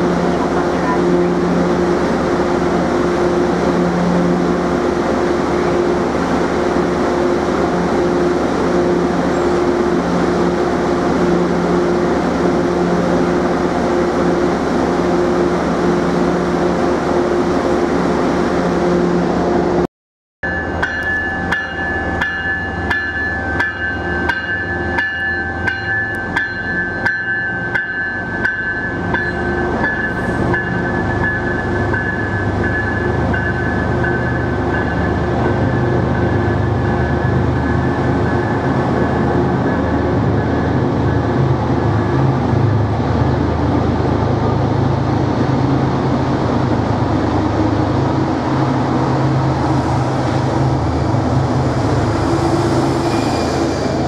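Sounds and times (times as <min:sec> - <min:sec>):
train rumbling past: 0:00.0 - 0:54.0.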